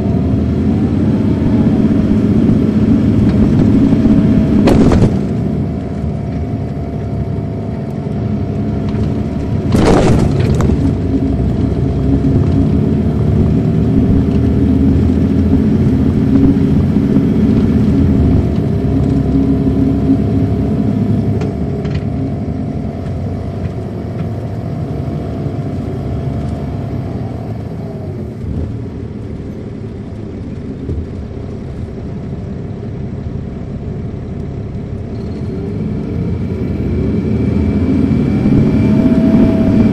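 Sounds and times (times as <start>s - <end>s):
bus diesel engine running: 0.0s - 39.9s
loud burst of noise: 1.2s - 5.7s, 9.6s - 12.5s.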